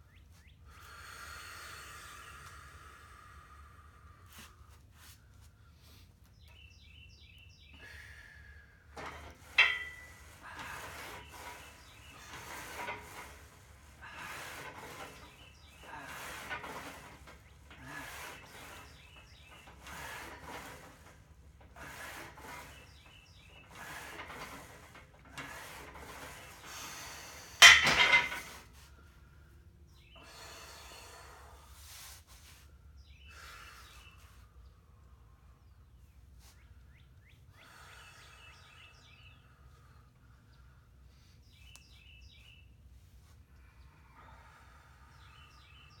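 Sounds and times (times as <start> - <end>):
metal bar clanking on rack: 9.1 - 10.1, 27.6 - 28.5.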